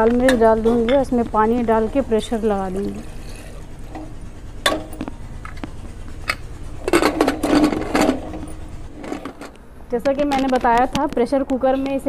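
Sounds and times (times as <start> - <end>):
metal lid clattering and scraping: 0.2 - 9.6.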